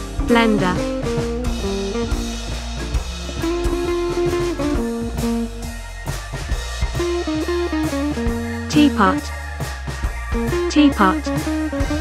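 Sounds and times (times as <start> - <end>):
plucked guitar: 0.0 - 5.6
drum kit beat: 0.0 - 12.0.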